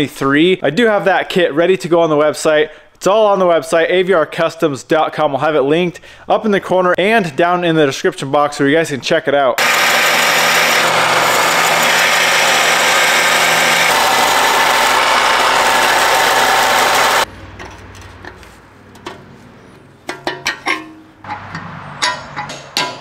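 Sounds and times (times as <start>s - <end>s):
belt sander grinding metal: 9.6s - 17.3s.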